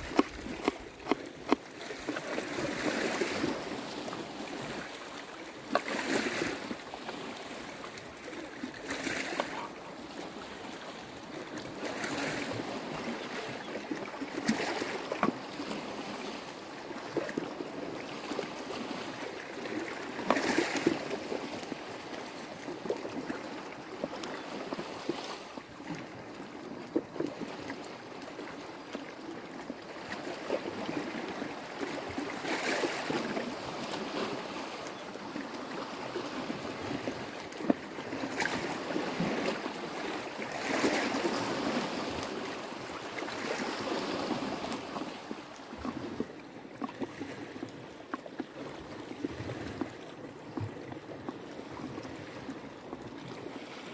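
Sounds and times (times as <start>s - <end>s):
waves washing on rocky shore: 0.0s - 10.7s.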